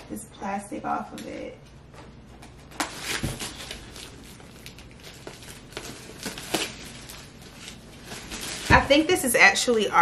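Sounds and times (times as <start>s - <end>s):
plastic film crinkling: 2.4s - 10.0s.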